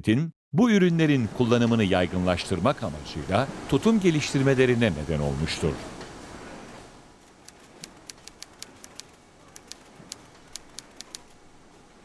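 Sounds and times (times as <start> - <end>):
typewriter keys clacking: 7.3 - 11.4.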